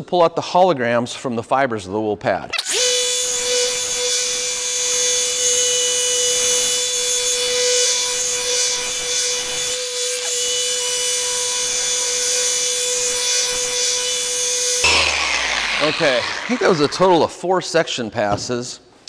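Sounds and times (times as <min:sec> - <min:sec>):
orbital polisher whining: 0:02.6 - 0:17.4.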